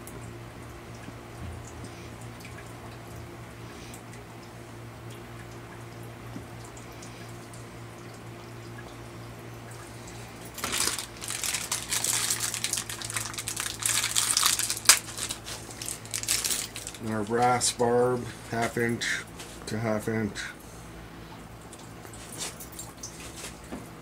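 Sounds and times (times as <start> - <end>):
steady low hum: 0.0 - 24.0
brass fittings clattering on wood: 13.8 - 17.6.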